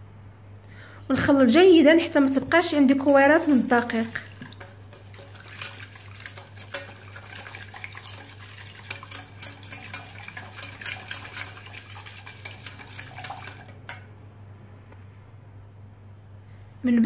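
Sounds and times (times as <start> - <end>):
whisk rattling in metal saucepan: 2.2 - 14.1.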